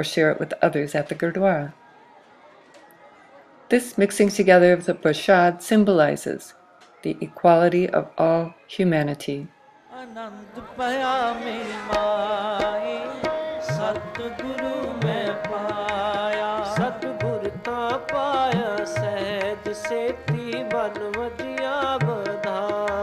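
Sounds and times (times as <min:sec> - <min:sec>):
hymn singing: 0:09.8 - 0:23.0
tabla drumming: 0:10.8 - 0:23.0.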